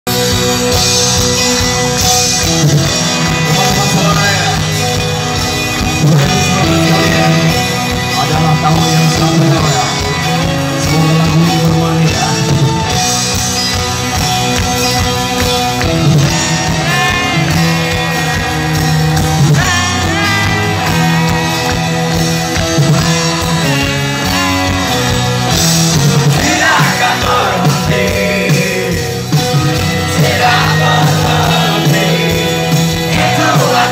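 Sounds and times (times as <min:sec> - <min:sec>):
rock band playing loudly: 0:00.0 - 0:33.9
person singing: 0:05.8 - 0:13.0, 0:26.2 - 0:33.9.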